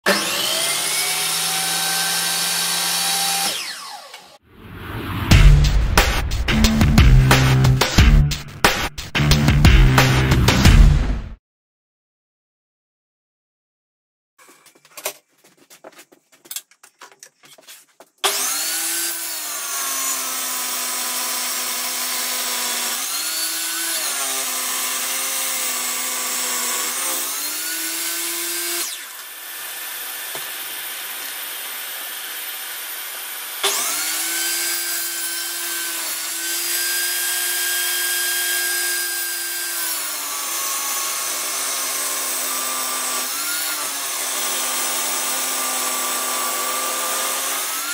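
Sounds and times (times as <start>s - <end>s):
table saw cutting wood: 0.0s - 4.4s, 18.2s - 47.9s.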